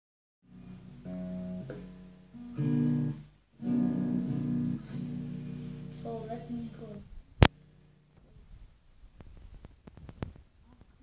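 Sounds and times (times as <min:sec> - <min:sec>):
acoustic guitar strumming chords: 0:00.5 - 0:08.0.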